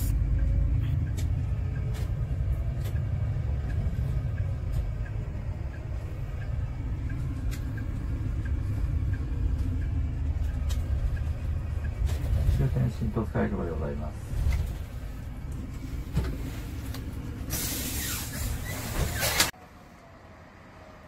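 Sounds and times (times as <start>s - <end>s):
bus engine and road rumble: 0.0s - 21.0s
turn indicator ticking: 0.1s - 14.1s.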